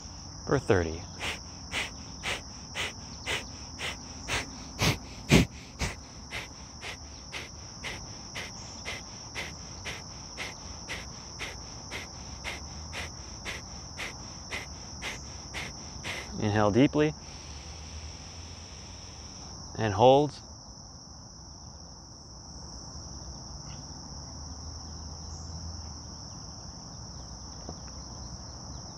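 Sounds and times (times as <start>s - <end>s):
high insect trill: 0.0s - 28.9s
forceful nasal exhalations: 1.0s - 16.6s.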